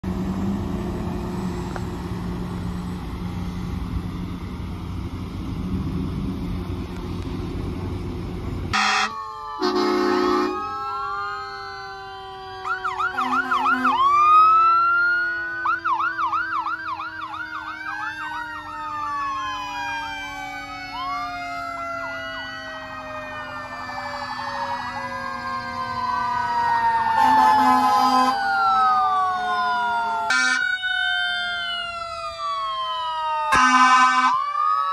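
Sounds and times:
low vehicle rumble: 0:00.0 - 0:33.8
sirens wailing and yelping: 0:00.0 - 0:34.9
short horn blasts: 0:08.7 - 0:10.6, 0:13.2 - 0:14.0, 0:33.6 - 0:34.4.

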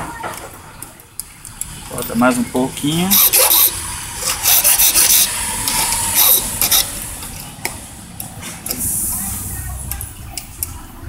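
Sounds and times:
file rasping on metal key: 0:03.1 - 0:07.0.

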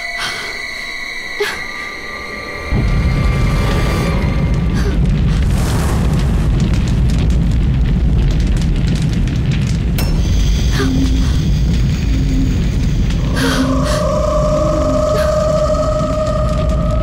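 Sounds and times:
fire: 0:02.7 - 0:17.0
low booming rumble: 0:02.7 - 0:17.0
sharp crack: 0:04.9 - 0:10.5.

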